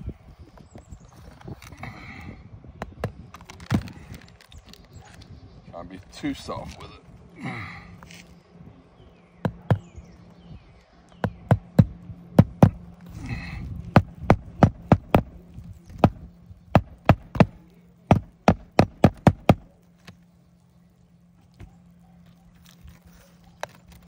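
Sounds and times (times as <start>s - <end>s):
hammer tapping nail: 16.0s - 19.6s.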